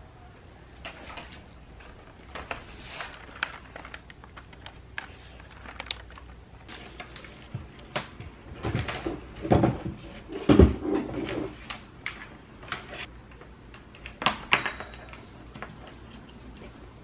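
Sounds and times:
faint steady high tone: 13.5 - 17.0.

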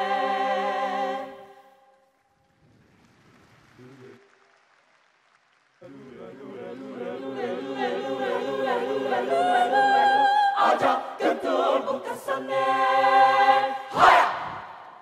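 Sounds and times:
mixed choir singing: 0.0 - 1.9, 5.8 - 15.0.

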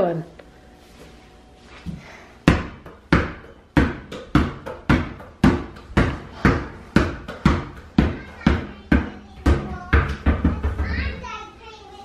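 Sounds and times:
basketball bouncing on tile floor: 1.9 - 11.2.

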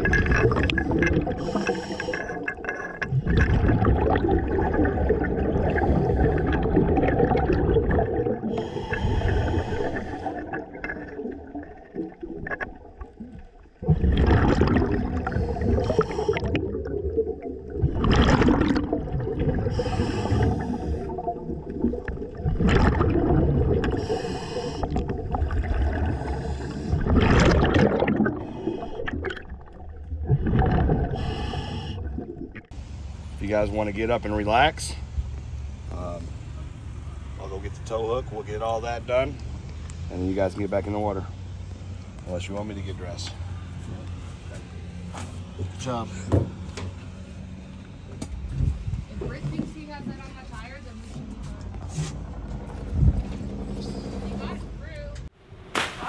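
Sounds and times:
exhaust bubbles gurgling: 0.0 - 35.0
low rumble of water: 0.0 - 55.7
regulator breathing hiss: 1.4 - 2.4, 19.7 - 21.1, 24.0 - 25.0, 31.2 - 32.1.

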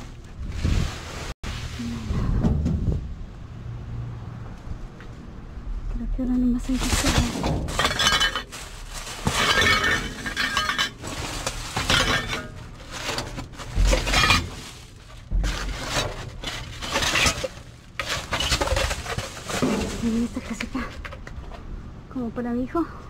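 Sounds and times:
plastic bags and foam rustling: 0.0 - 2.2, 6.2 - 21.6
heavy bump: 1.9 - 3.6, 5.6 - 21.8
glass clinking and crunching: 6.8 - 21.6.

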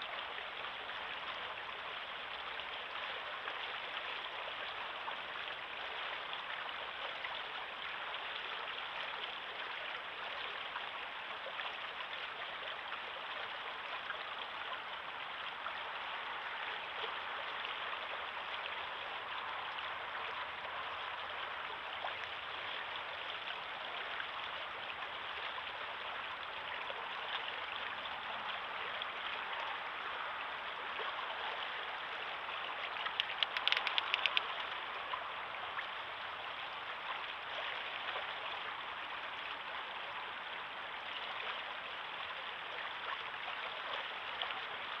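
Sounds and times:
river flowing over stones: 0.0 - 45.0
clicks: 33.1 - 34.8.

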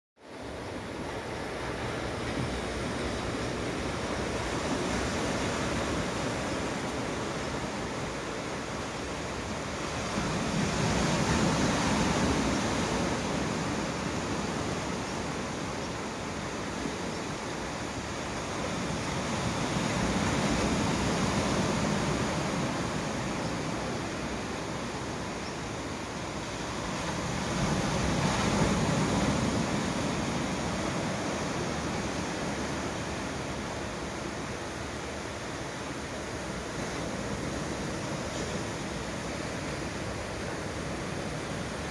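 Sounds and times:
sea surf washing onto beach: 0.2 - 41.9.

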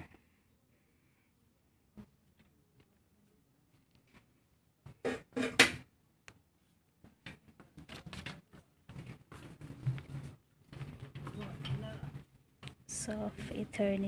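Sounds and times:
plastic basket rattling and clattering: 7.8 - 12.2.

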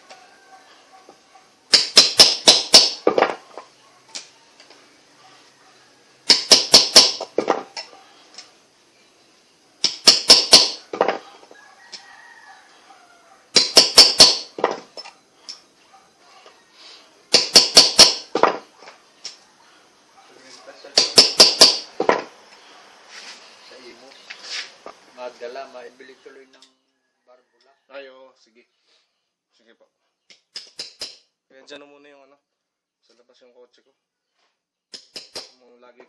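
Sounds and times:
hammer tapping on metal: 21.0 - 21.8.

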